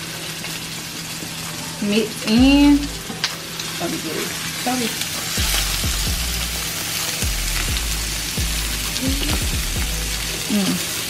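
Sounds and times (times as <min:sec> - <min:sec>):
sausage sizzling in a pan: 0:00.0 - 0:11.0
background music with deep bass: 0:05.0 - 0:11.0.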